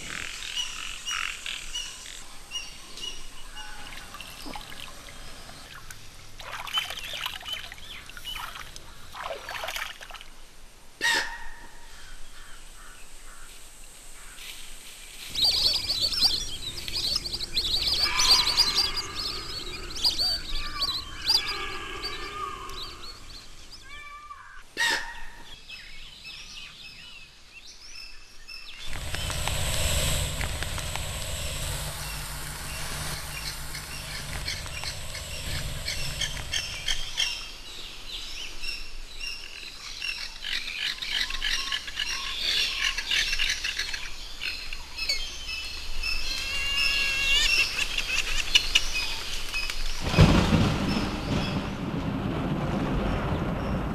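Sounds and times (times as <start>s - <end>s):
forest ambience: 0.0s - 53.9s
birds chirping and calling: 15.3s - 24.9s.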